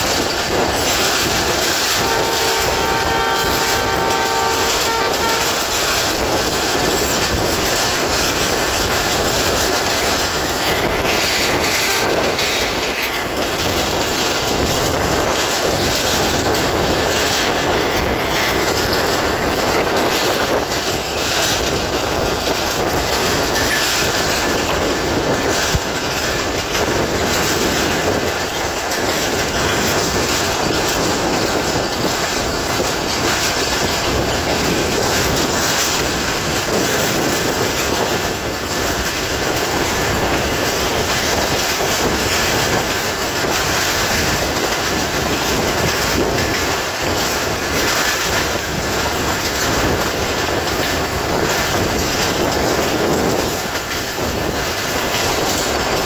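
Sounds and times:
train running rumble: 0.0 - 56.0
wheels clattering over rail joints: 0.0 - 56.0
train horn: 1.9 - 6.0, 11.7 - 12.3.

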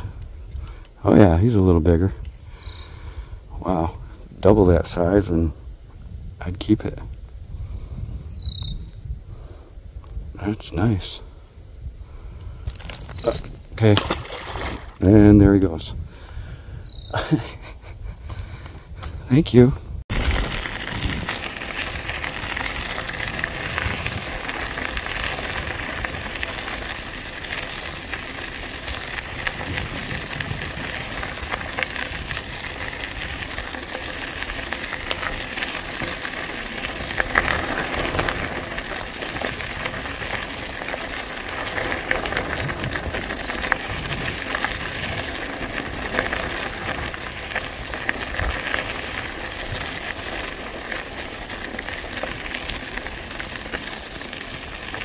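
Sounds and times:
bike tyres crunching on gravel: 11.8 - 17.2, 18.3 - 55.0
loose stones ticking: 12.6 - 14.0, 20.1 - 55.0.

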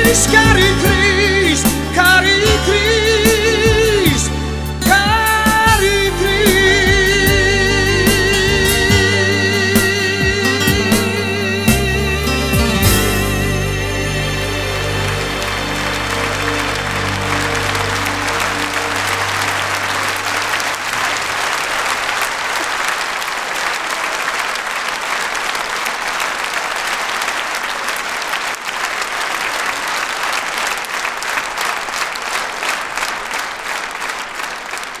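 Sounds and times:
audience applauding: 12.2 - 35.0.

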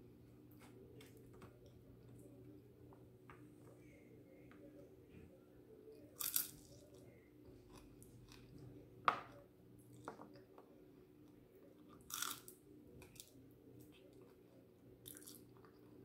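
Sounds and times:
faint steady hum: 0.0 - 16.0
crunchy bites and chewing: 12.0 - 12.5.

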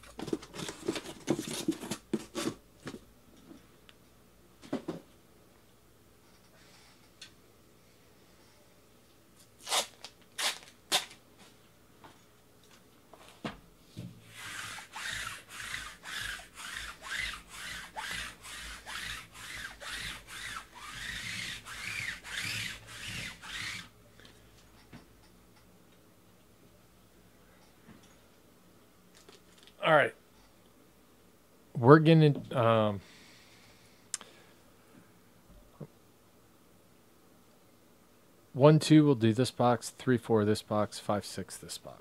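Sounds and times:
rhythmic rubbing: 14.3 - 23.9.

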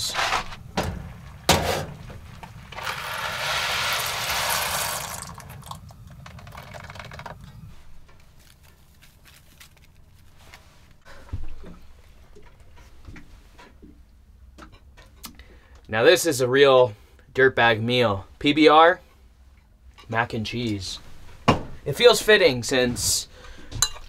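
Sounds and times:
low steady hum: 0.0 - 24.0
water pouring into saucepan: 2.7 - 7.3
dry pasta pouring into pot: 2.8 - 7.3.

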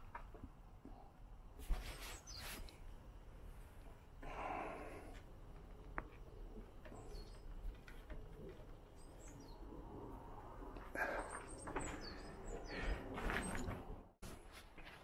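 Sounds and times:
small birds chirping: 1.8 - 2.8, 4.4 - 13.9.

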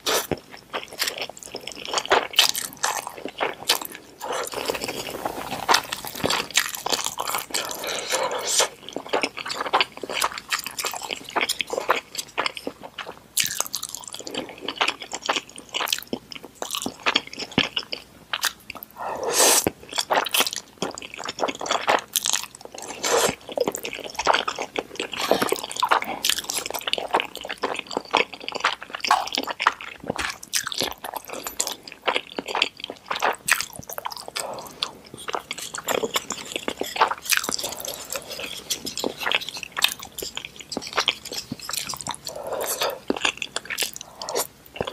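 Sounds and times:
wet chewing of noodles: 0.0 - 44.9.

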